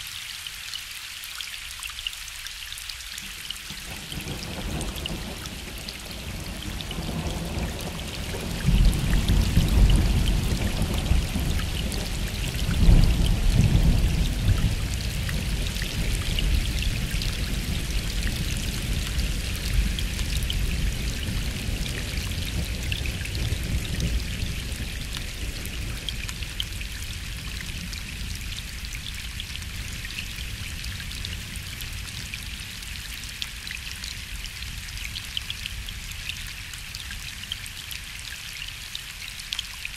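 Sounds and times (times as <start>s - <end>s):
gentle rain falling: 0.0s - 39.9s.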